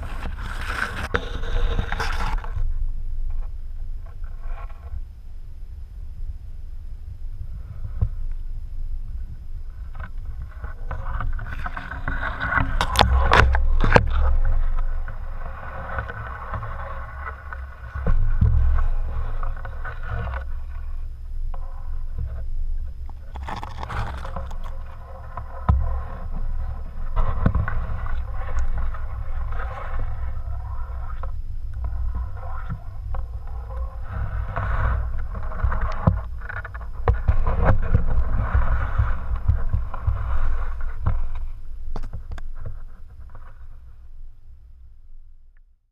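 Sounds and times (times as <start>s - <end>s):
muffled underwater water rumble: 0.0s - 45.8s.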